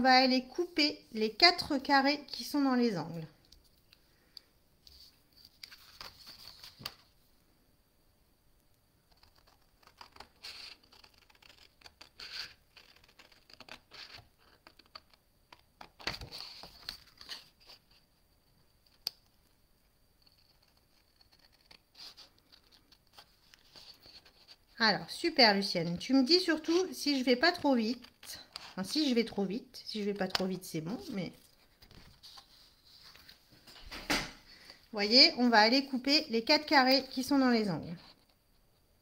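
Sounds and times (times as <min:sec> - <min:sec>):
paper sheet rustling: 0:04.9 - 0:07.1, 0:15.8 - 0:18.0, 0:20.2 - 0:24.8, 0:30.3 - 0:34.2.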